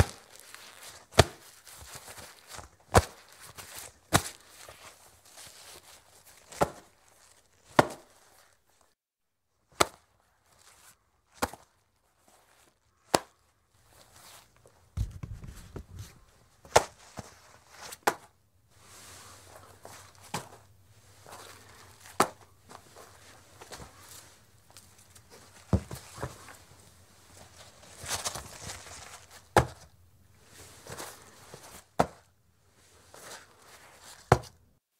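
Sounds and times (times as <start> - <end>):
leather slaps: 0.0 - 0.3, 1.1 - 3.3, 7.7 - 8.2, 9.8 - 10.0, 15.0 - 17.0, 22.1 - 22.4, 34.2 - 34.6
leather rustling: 13.9 - 17.8
dull thump: 15.0 - 16.9.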